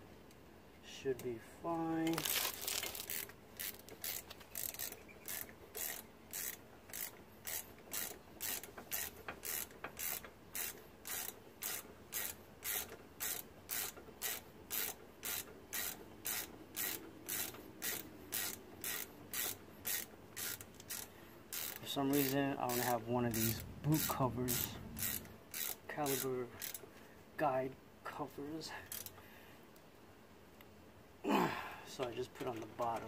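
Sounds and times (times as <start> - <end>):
ratchet wrench clicking: 2.9 - 26.9, 28.8 - 29.2.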